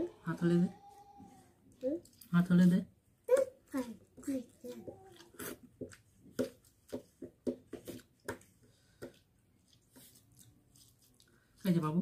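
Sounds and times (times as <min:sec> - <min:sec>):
hand mashing rice in steel bowl: 0:04.1 - 0:12.0.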